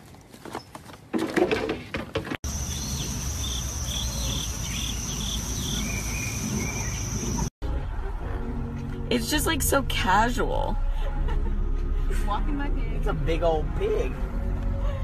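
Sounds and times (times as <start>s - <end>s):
high insect trill: 2.5s - 7.5s
short insect chirps: 2.5s - 7.5s.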